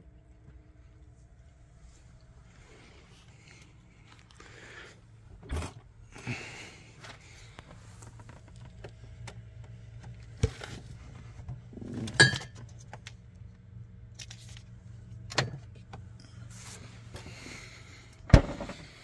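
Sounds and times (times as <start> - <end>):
low hum: 0.0 - 19.0
mug clinking on plastic shelf: 12.0 - 12.6.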